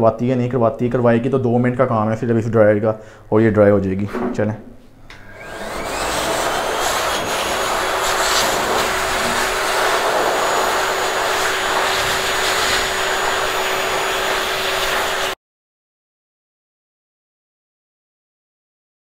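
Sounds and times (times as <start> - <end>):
blow dryer blowing: 5.1 - 15.4
dryer motor hum: 5.1 - 15.4.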